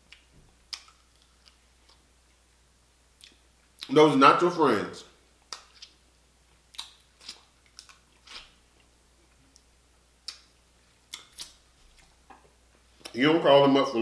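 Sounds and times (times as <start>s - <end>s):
chewing noises: 0.1s - 2.1s, 5.4s - 13.2s.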